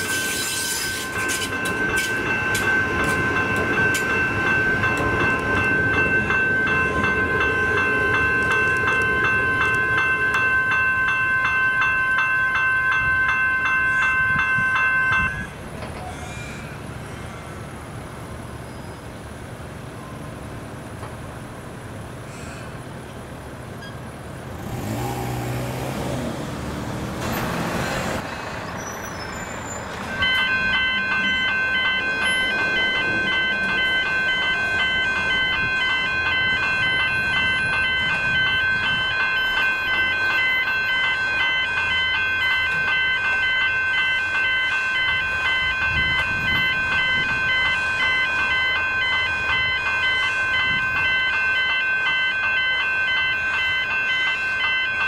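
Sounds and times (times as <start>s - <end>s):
level crossing warning bells: 0.0s - 18.6s, 29.5s - 55.0s
heavy vehicle driving past: 24.4s - 30.0s.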